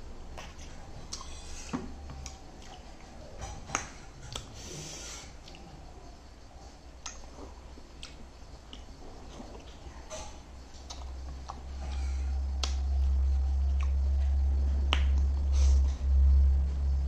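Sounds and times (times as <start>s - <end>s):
mouth clicks and smacks eating: 0.2s - 16.6s
deep low rumble: 9.0s - 17.0s.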